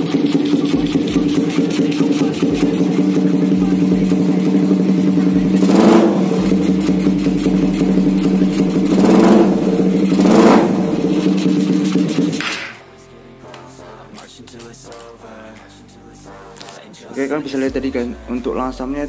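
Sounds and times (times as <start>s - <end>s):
motorcycle engine idling and revving: 0.0s - 12.5s.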